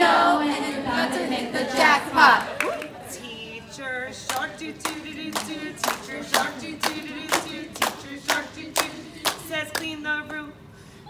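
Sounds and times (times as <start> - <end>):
women singing together: 0.0 - 10.6
hands clapping a beat: 4.3 - 9.9.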